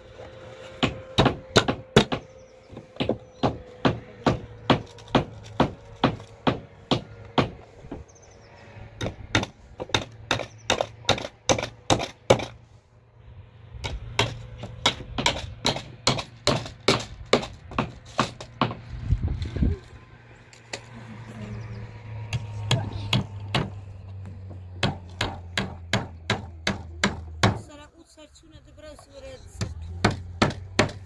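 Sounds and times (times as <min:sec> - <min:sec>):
hatchet chopping wood: 0:00.8 - 0:07.6, 0:09.0 - 0:12.6, 0:13.8 - 0:18.8, 0:22.3 - 0:23.8, 0:24.8 - 0:27.6, 0:29.6 - 0:31.0.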